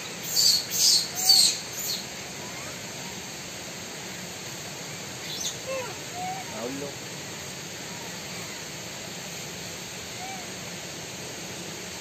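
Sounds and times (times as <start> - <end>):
bird calling: 0.0 - 3.2, 5.2 - 7.0.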